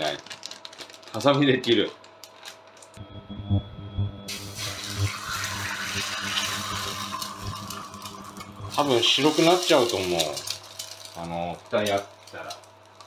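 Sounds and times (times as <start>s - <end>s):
egg sizzling in hot oil: 4.3s - 13.0s.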